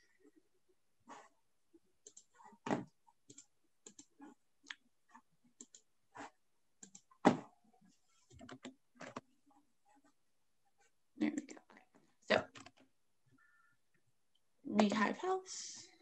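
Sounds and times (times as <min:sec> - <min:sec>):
keyboard and mouse clicks: 0:02.0 - 0:04.8, 0:05.6 - 0:05.9, 0:06.8 - 0:07.4, 0:08.3 - 0:09.3, 0:12.5 - 0:12.9.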